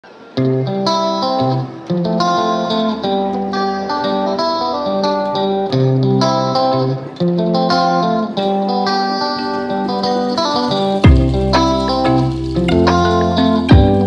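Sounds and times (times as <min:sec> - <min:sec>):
plucked guitar melody: 0:00.0 - 0:14.0.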